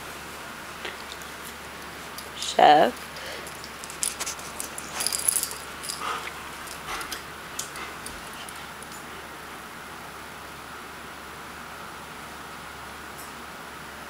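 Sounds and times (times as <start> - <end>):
dog tags jingling: 1.2 - 9.1.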